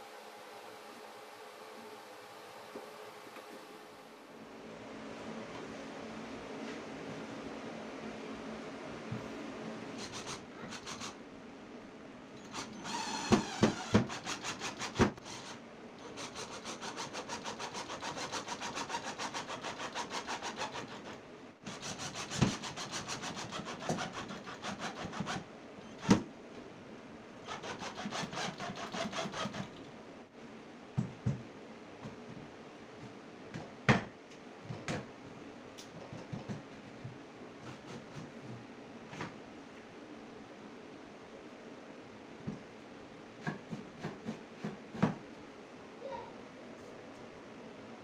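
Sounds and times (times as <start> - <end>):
hand saw strokes: 12.5 - 25.4, 27.5 - 29.8.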